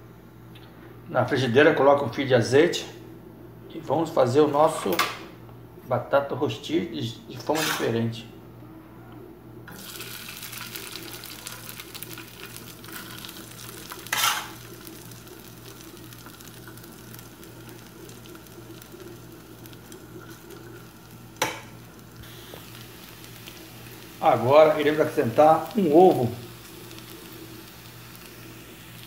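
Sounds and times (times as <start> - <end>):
pan scrape: 7.4 - 8.0, 14.0 - 14.7
potato sizzling in oil: 9.7 - 29.0.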